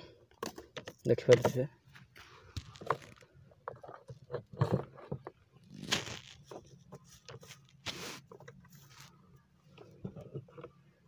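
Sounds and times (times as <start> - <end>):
plastic scrape: 2.6 - 9.2.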